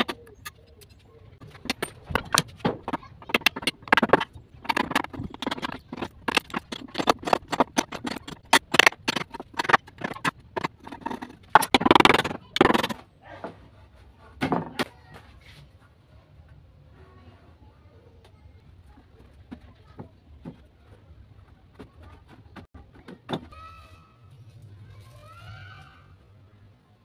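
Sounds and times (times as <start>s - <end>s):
wooden boards knocking and clattering: 1.4s - 13.0s, 14.4s - 14.9s.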